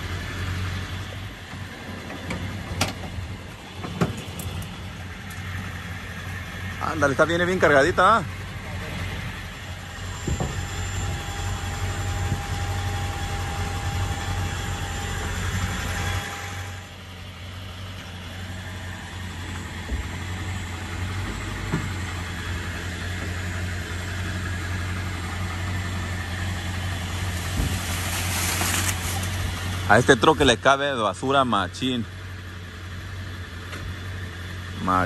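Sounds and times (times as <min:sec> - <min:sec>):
thin steady whine: 0:00.0 - 0:31.8
truck engine idling: 0:00.0 - 0:35.0.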